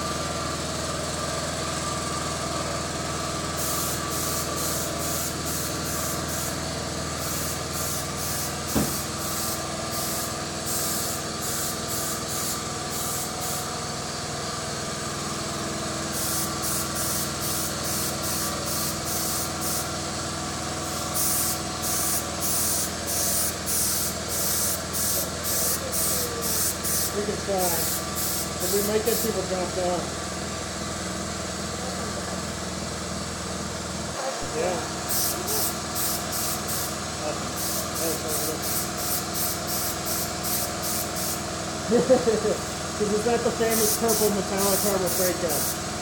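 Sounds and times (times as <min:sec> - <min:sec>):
air compressor humming: 0:00.0 - 0:46.0
spray gun hissing: 0:03.6 - 0:13.8, 0:16.0 - 0:20.0, 0:20.8 - 0:29.4, 0:34.9 - 0:41.6, 0:42.5 - 0:45.9
sharp knock: 0:08.7 - 0:09.0.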